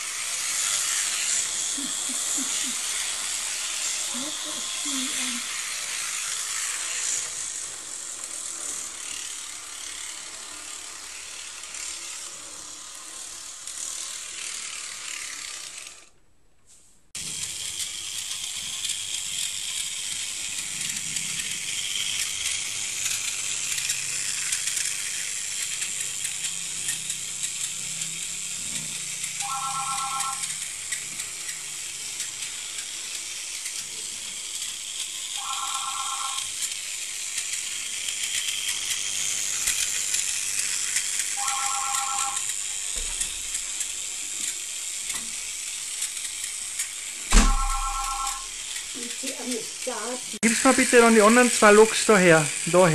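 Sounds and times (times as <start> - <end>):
model trains rattling on track: 17.2 - 52.9.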